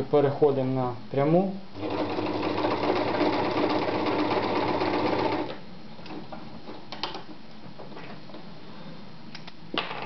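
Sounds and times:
electric sewing machine running: 1.8s - 5.6s.

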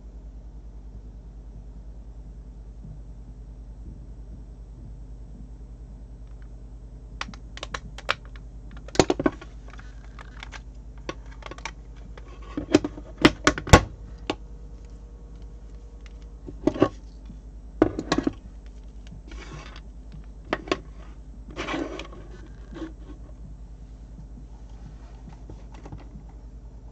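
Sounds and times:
cable rustling: 7.2s - 23.5s.

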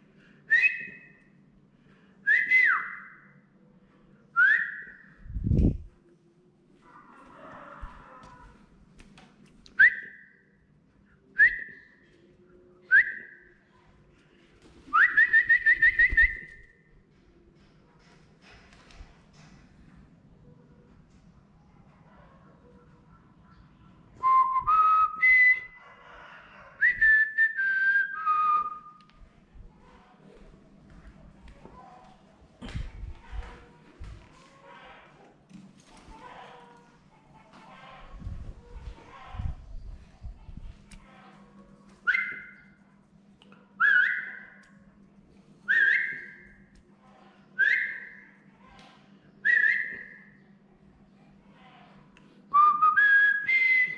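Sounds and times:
whistled call: 0.5s - 1.2s, 42.1s - 42.6s, 43.8s - 44.6s, 45.7s - 46.5s, 47.6s - 48.3s, 49.4s - 50.4s, 52.5s - 53.9s.

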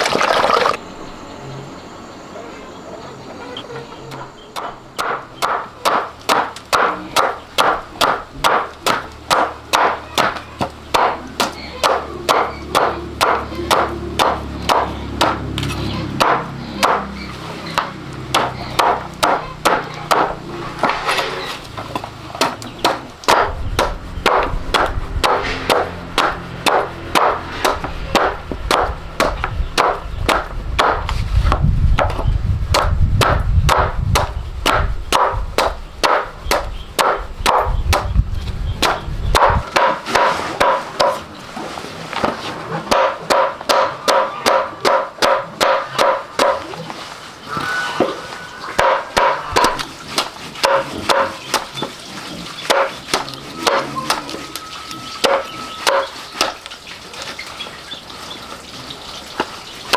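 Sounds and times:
knife chopping: 4.6s - 17.1s, 22.0s - 38.1s, 38.8s - 41.2s, 42.9s - 46.7s, 48.8s - 54.3s, 55.2s - 56.6s.

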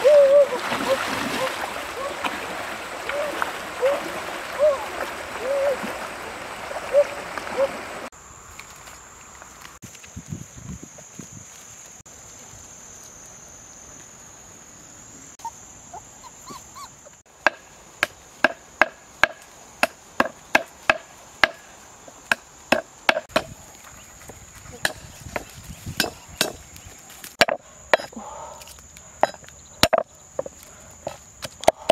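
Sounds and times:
high insect drone: 8.1s - 31.9s.

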